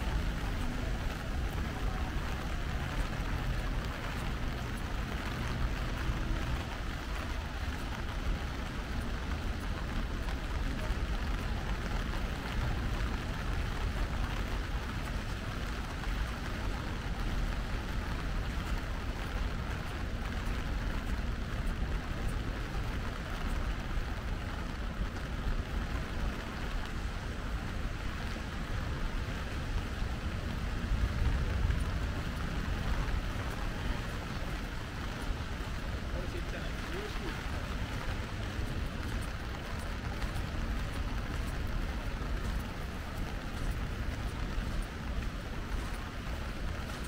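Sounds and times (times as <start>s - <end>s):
rain on umbrella and paving: 0.0s - 47.0s.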